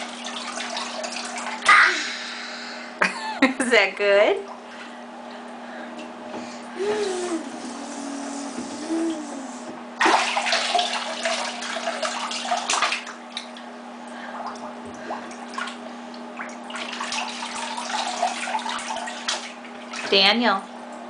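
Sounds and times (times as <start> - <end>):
bathwater splashing: 0.0 - 2.0, 6.4 - 20.4
low hum: 4.9 - 10.0.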